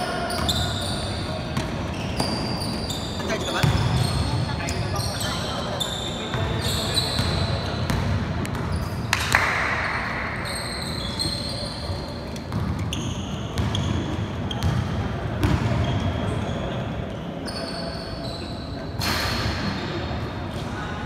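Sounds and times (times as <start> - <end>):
sneakers squeaking: 0.0 - 20.6
basketball bouncing on wooden court: 3.5 - 4.4, 7.1 - 8.8, 12.5 - 16.1.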